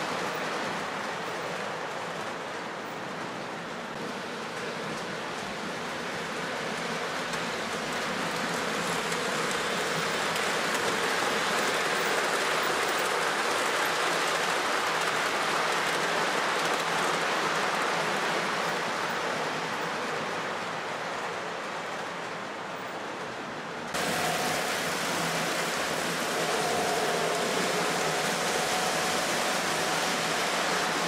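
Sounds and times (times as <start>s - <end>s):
model train wheels rumbling: 0.0s - 31.0s.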